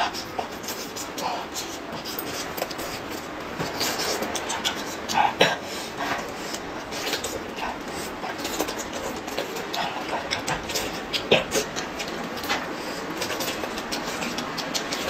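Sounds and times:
woman chewing and smacking lips: 6.0s - 15.0s.

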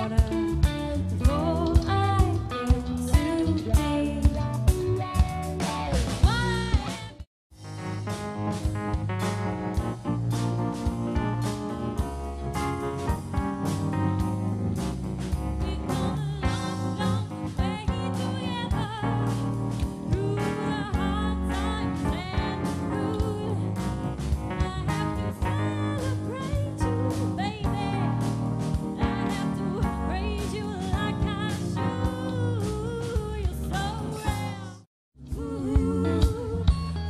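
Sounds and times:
live band music: 0.0s - 37.0s
woman singing with vibrato: 15.7s - 19.3s, 20.1s - 23.7s, 29.0s - 36.7s.

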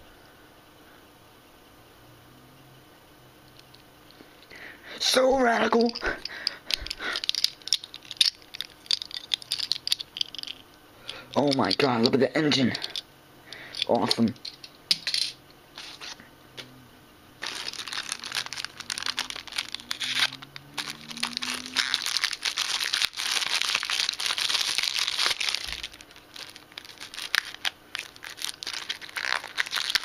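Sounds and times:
plastic wrapping crinkling: 5.7s - 10.6s, 17.4s - 30.0s.

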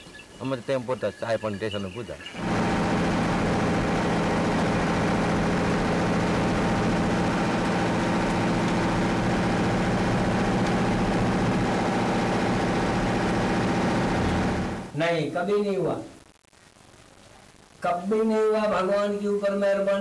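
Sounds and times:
vehicle engine running: 2.4s - 14.9s.

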